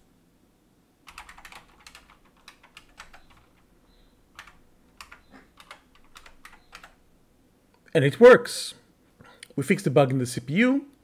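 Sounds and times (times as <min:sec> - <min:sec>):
keyboard typing clicks: 0:01.1 - 0:03.6, 0:04.3 - 0:07.0.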